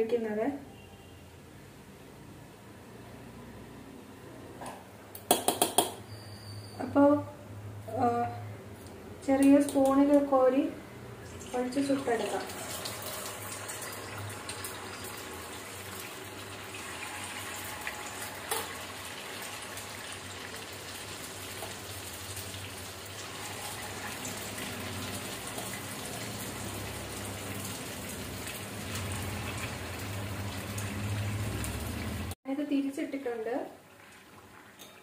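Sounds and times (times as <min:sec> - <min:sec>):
oil sizzling while deep-frying: 0:11.2 - 0:32.4, 0:33.2 - 0:35.0.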